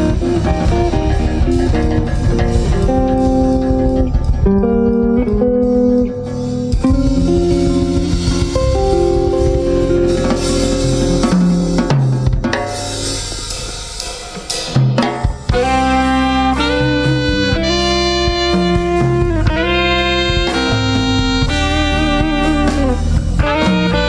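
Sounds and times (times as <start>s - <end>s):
sharp drum hits: 0.0s - 19.1s
drum kit with cymbals: 0.0s - 24.0s
electric bass: 0.0s - 24.0s
electric guitar chords: 0.0s - 24.0s.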